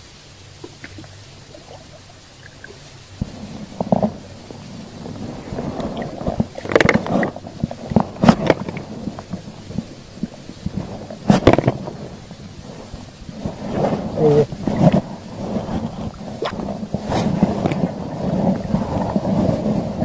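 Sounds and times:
clothing and gear rustling: 3.3s - 19.9s.

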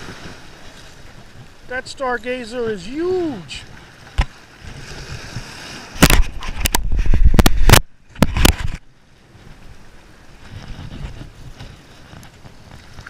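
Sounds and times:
camera handling noise: 6.0s - 8.8s.

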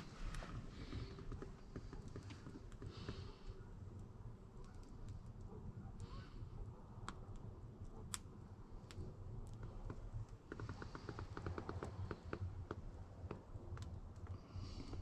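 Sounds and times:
campfire crackling: 0.0s - 15.0s.

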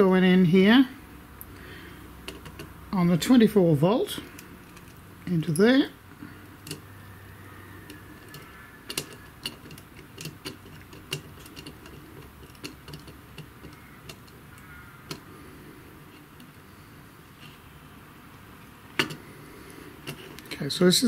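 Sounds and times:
screwdriver turning a screw: 7.8s - 15.3s.

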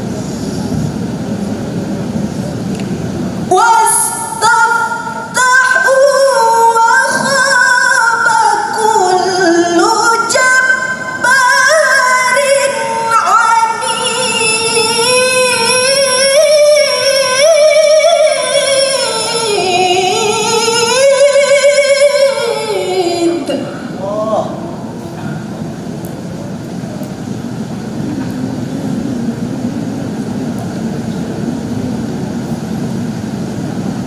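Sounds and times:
woman reciting melodically: 3.5s - 24.6s.

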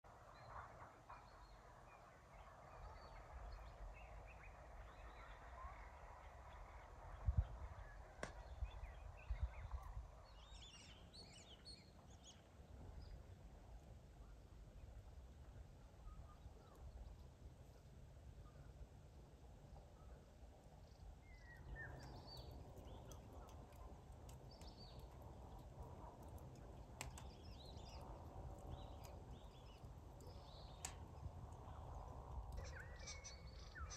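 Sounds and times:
low background rumble: 0.1s - 33.9s
birds chirping: 0.2s - 13.4s, 19.8s - 33.9s
faint sharp clicks: 8.2s - 8.8s, 20.8s - 33.1s
bird chirps and warbling: 32.6s - 33.9s.

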